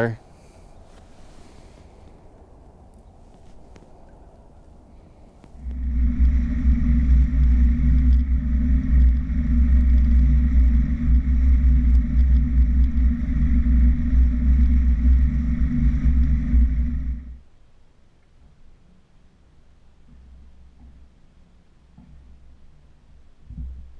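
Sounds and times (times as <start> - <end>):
outboard motor running: 5.5 - 17.4.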